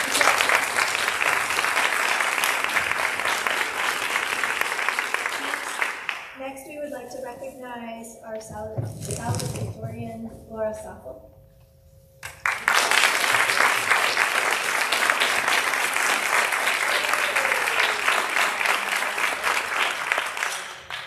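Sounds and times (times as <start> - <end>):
audience applauding: 0.0 - 6.4, 12.2 - 21.0.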